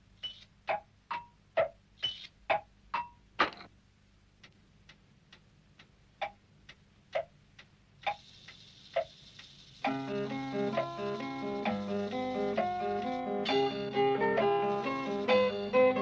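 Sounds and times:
clock ticking: 0.1s - 3.6s, 4.3s - 16.0s
faint hiss: 7.9s - 16.0s.

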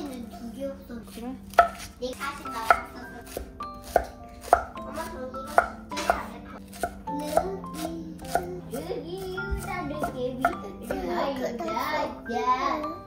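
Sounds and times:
knife chopping on cutting board: 1.5s - 8.5s.

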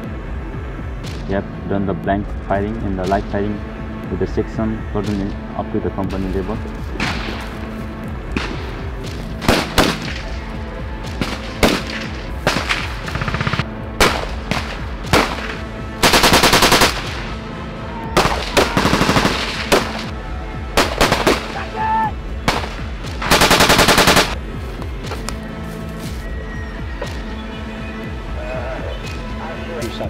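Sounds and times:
machine-gun fire: 12.5s - 17.2s, 18.2s - 20.1s, 20.8s - 21.5s, 22.5s - 24.4s.

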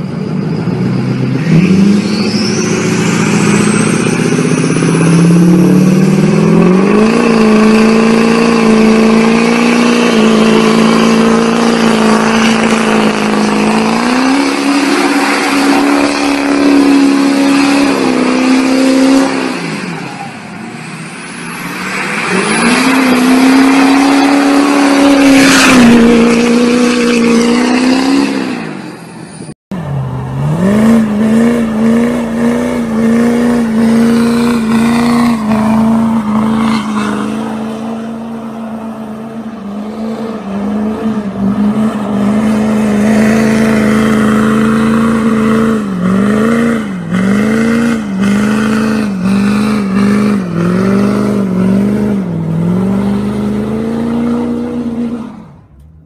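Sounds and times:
tires spinning: 0.0s - 55.8s
diesel truck engine revving: 0.0s - 56.0s.

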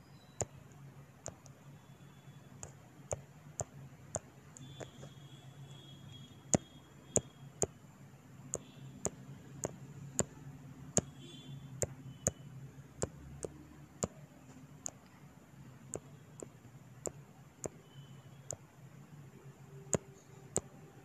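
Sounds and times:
fingertip taps on touchscreen: 1.2s - 1.6s, 2.6s - 5.2s, 6.5s - 7.8s, 8.5s - 11.2s, 15.9s - 17.8s, 19.9s - 20.7s.

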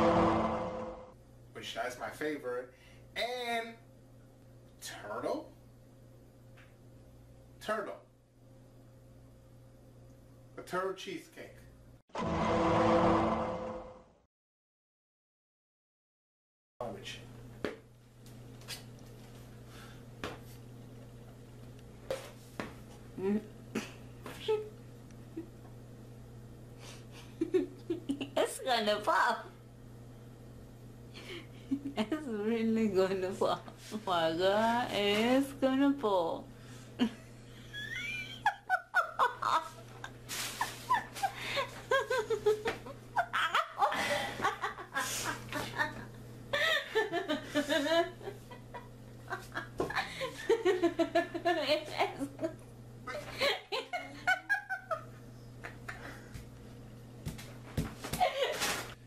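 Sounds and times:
person giggling: 37.0s - 39.9s, 40.6s - 46.0s.

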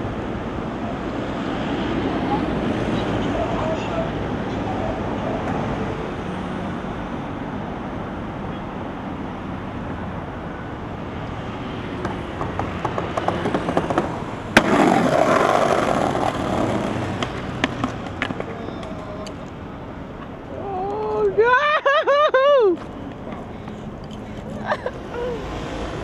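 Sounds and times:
city traffic noise: 0.0s - 26.0s
skateboard wheels rolling over pavers: 11.9s - 19.6s
sharp skateboard clack: 12.0s - 19.6s.

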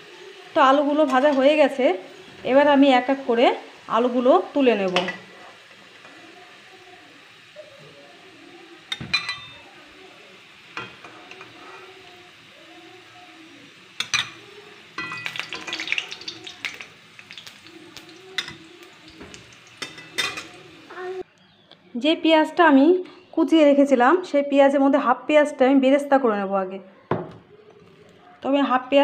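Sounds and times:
potatoes sizzling in hot oil: 0.0s - 21.2s.

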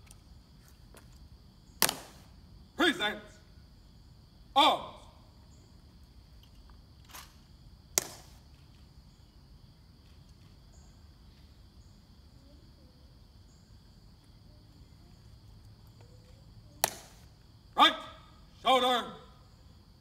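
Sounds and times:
high insect drone: 0.0s - 20.0s
sharp rifle crack: 1.8s - 2.3s, 7.1s - 8.4s, 16.8s - 17.3s.

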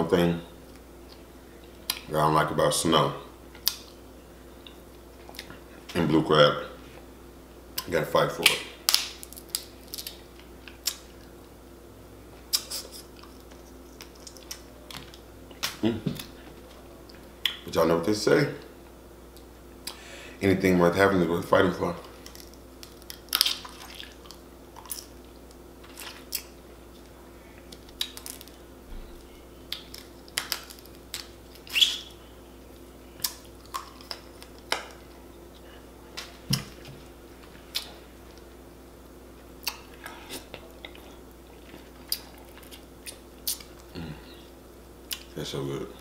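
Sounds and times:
faint steady hum: 0.0s - 46.0s
chewing and smacking: 4.6s - 5.6s, 12.5s - 17.6s, 22.1s - 28.6s, 29.7s - 32.0s, 33.2s - 38.5s, 39.6s - 44.0s
crab shells cracking: 8.4s - 11.0s, 22.2s - 26.5s, 27.7s - 28.6s, 29.7s - 31.8s.

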